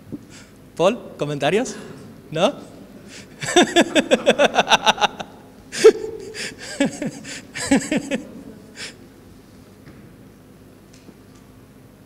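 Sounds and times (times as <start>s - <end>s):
man laughing: 3.4s - 9.0s.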